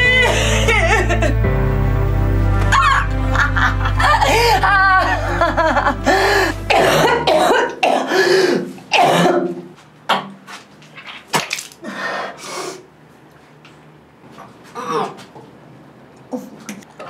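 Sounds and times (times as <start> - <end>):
low music drone: 0.0 - 8.0
person coughing: 6.7 - 10.3, 14.8 - 15.2.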